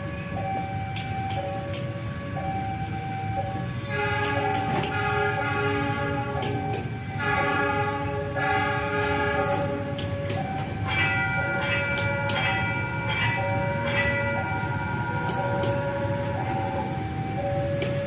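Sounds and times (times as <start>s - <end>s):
locomotive low rumble: 0.0s - 18.0s
locomotive air horn chord: 3.8s - 10.3s.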